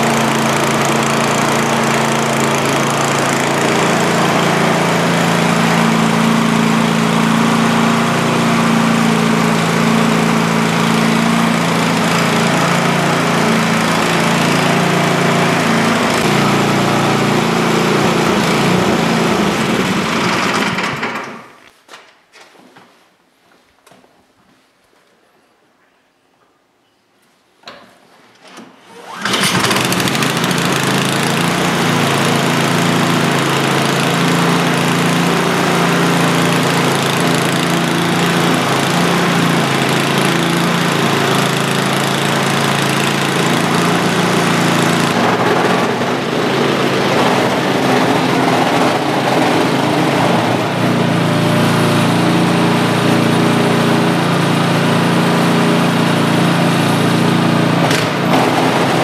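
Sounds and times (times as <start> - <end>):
snowblower engine running: 0.0 - 21.5, 29.0 - 59.0
pull-start cord tugs: 28.5 - 46.0.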